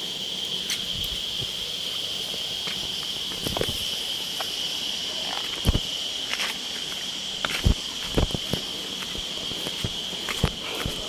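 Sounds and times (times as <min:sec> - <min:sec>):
insects droning: 0:00.0 - 0:11.0
footsteps on rock: 0:05.4 - 0:11.0.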